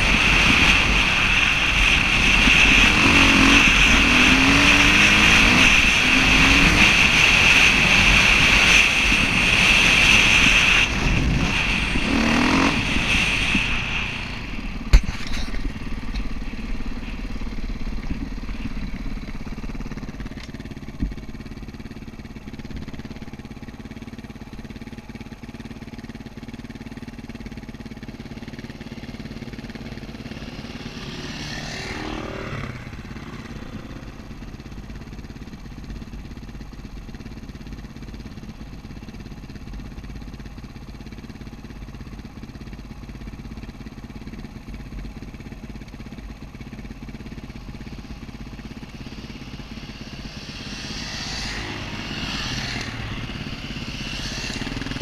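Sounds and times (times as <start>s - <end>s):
passing dirt bike engine: 0.0s - 19.6s, 29.5s - 34.5s, 48.0s - 55.0s
dirt bike engine running: 0.0s - 55.0s.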